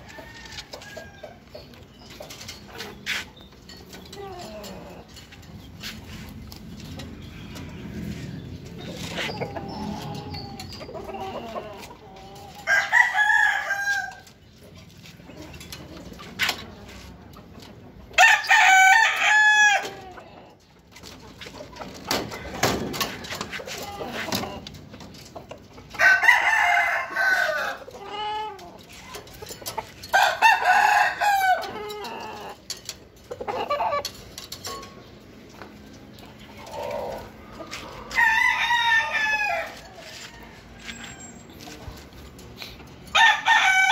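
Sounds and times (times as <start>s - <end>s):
roosters crowing: 0.0s - 1.9s, 2.6s - 14.5s, 18.0s - 20.6s, 22.0s - 25.0s, 25.7s - 34.4s, 36.4s - 41.9s, 42.9s - 43.9s
metal cage panels clattering: 21.0s - 25.6s, 28.4s - 36.1s.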